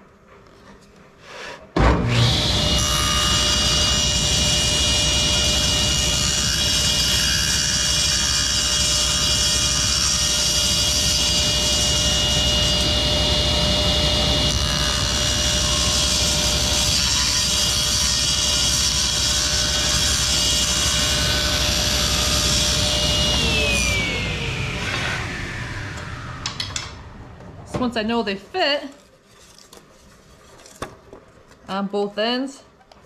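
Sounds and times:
saw blade cutting wood: 1.8 - 26.6
table saw whine: 1.8 - 28.3.

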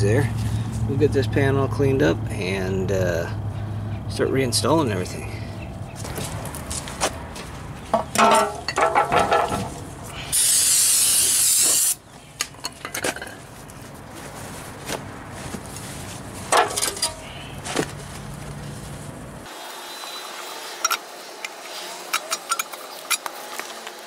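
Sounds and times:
knocks and clatter of metal pan: 8.0 - 9.7
aerosol can spraying: 10.4 - 12.0.

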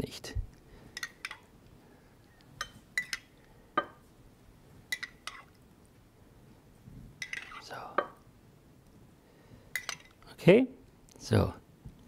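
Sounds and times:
metal spoon clinking on mug: 4.9 - 5.5, 9.8 - 10.2.

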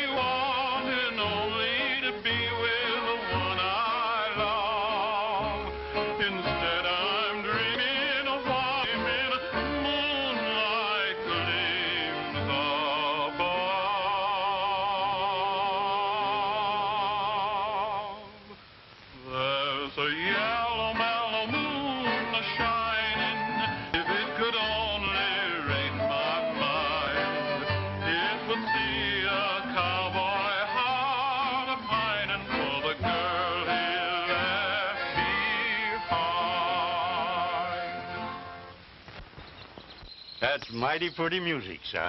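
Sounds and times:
low musical accompaniment: 0.0 - 17.5, 20.0 - 38.8
operatic singing with vibrato: 0.0 - 18.6, 19.2 - 38.8.

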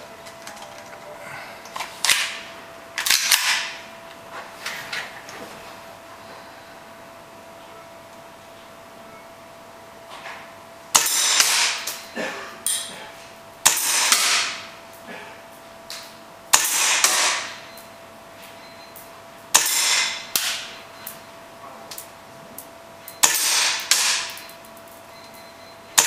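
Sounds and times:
airsoft pistol shots: 11.0 - 12.0, 13.6 - 14.7, 16.5 - 17.6, 19.5 - 20.7, 23.2 - 24.4.

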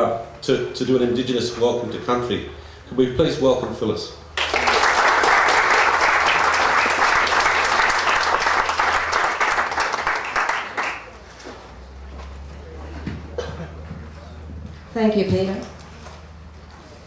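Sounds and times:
audience applauding: 4.4 - 11.2.

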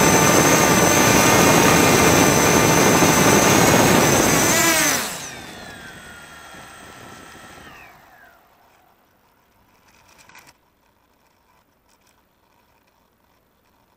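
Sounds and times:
drone motors whining down: 0.0 - 9.2.

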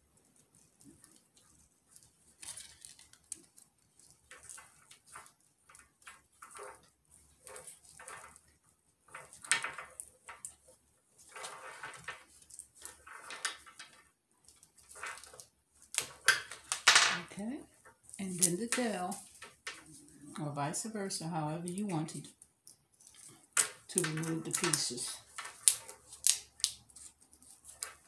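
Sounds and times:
wooden links clacking: 23.0 - 28.0.

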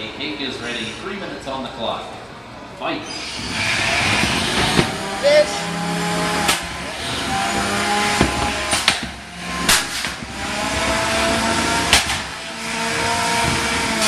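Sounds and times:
electric motors whining: 3.0 - 14.0
sharp metal hits: 4.2 - 11.0.

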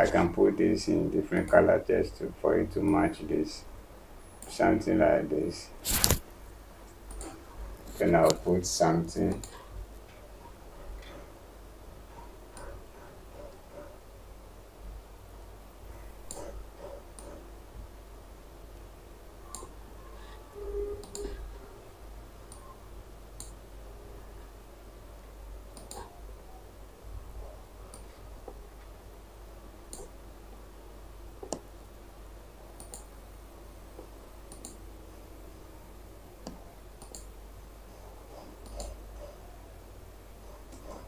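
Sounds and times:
low steady hum: 0.0 - 41.0
computer mouse clicking: 7.1 - 8.4, 9.3 - 9.6, 12.5 - 12.8, 16.2 - 17.4, 19.5 - 19.7, 21.0 - 21.4, 25.7 - 26.1, 27.9 - 28.6, 29.9 - 30.2, 31.4 - 31.7, 32.8 - 33.1, 34.0 - 34.8, 36.4 - 37.3, 38.3 - 39.0, 40.7 - 41.0.

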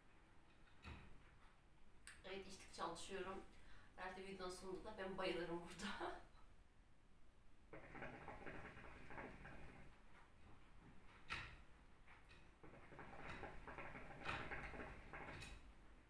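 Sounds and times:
hookah water bubbling: 7.7 - 10.0, 12.6 - 15.4.

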